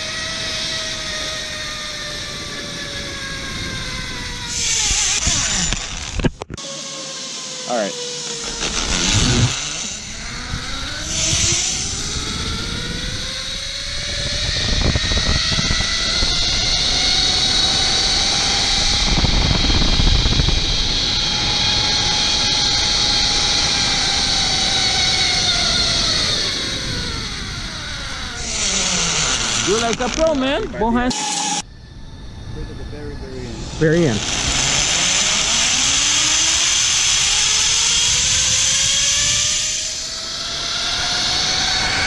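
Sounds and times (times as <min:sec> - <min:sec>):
zip-line pulley whine: 0:00.0 - 0:42.0
wind rushing: 0:08.7 - 0:42.0.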